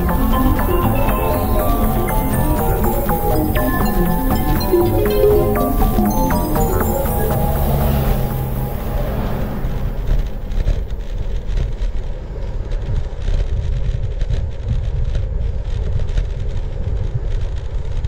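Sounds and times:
wind rumble on microphone: 9.6 - 18.0.

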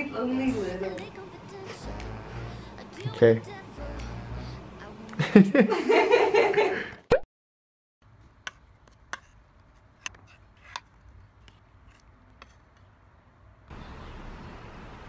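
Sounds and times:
voices: 0.0 - 5.6.

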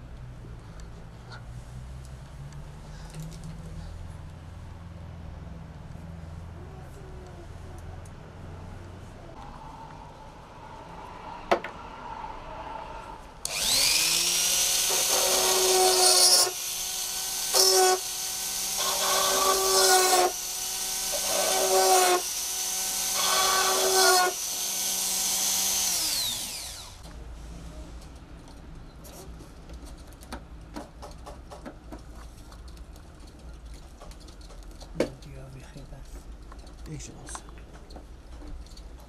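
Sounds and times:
electric motor whine: 13.4 - 27.0.

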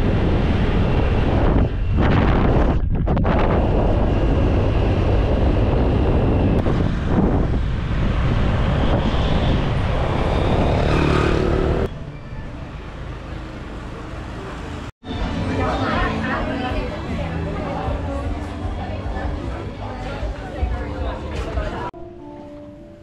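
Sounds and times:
vehicle rushing noise: 0.0 - 15.5.

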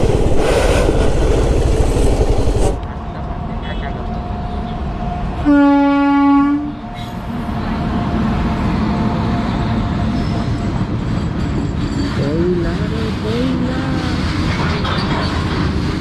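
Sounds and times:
train rumbling on rails: 0.0 - 16.0
train horn blast: 5.4 - 6.9.

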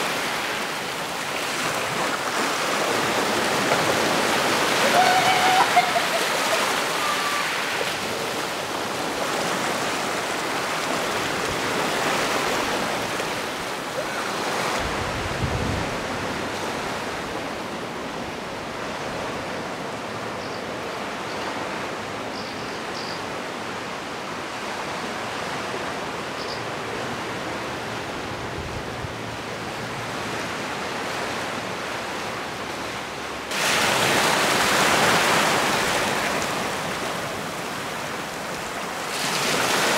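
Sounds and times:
sea surf: 0.0 - 39.9
wind: 0.0 - 39.9
wind buffeting microphone: 14.7 - 16.6.

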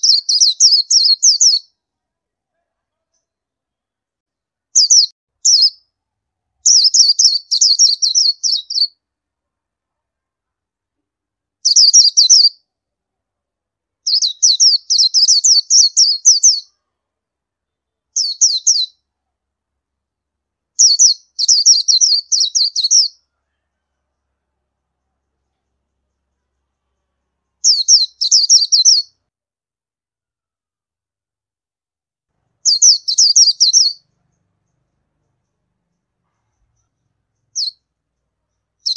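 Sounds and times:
bird twittering: 4.8 - 5.8, 14.1 - 16.7, 32.6 - 34.4, 36.4 - 37.8, 38.6 - 38.9.

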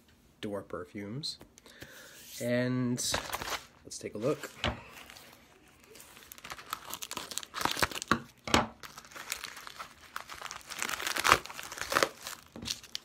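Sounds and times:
plastic mailer crinkling and tearing: 3.0 - 13.0.

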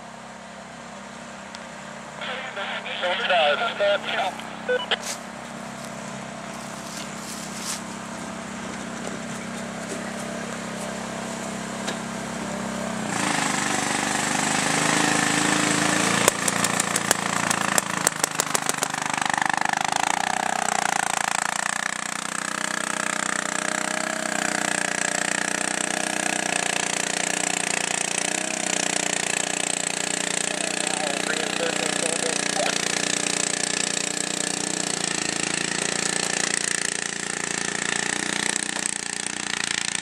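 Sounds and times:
paintball markers firing: 16.3 - 19.0.

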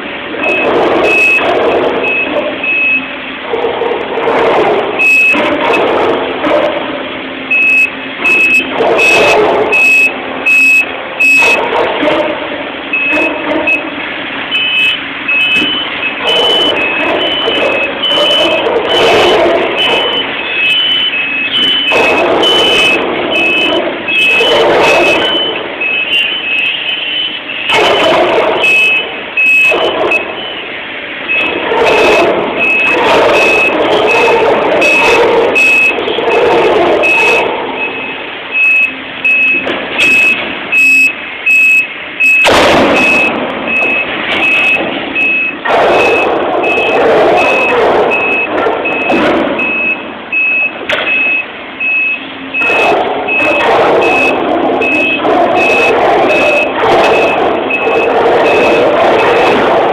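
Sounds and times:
reversing alarm beeping: 0.0 - 3.4, 4.4 - 6.2, 7.2 - 12.1, 12.9 - 59.9
excavator tearing into steel: 0.0 - 26.9, 27.5 - 30.6, 31.2 - 51.9, 52.6 - 59.9
sharp metallic knocks: 42.2 - 50.0.

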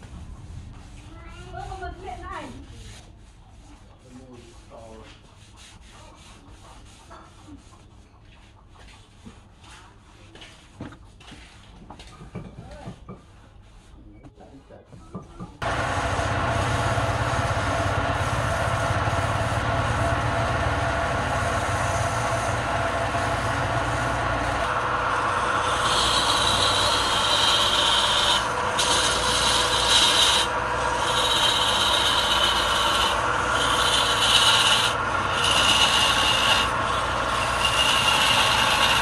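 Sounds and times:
chisel cutting turning wood: 15.2 - 39.0
wood lathe running: 15.6 - 39.0.

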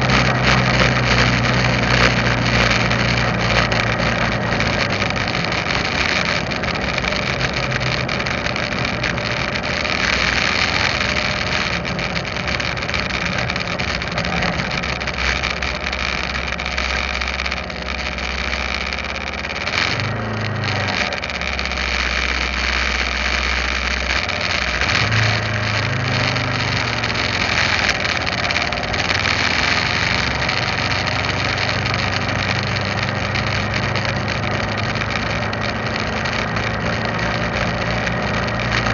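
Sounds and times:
motorcycle engine running: 0.0 - 38.9
scooters in traffic: 0.0 - 38.9
wind and road noise: 0.0 - 38.9.

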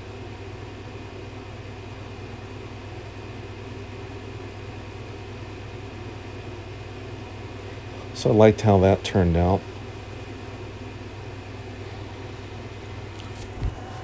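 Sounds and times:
low room hum with hiss: 0.0 - 14.0.

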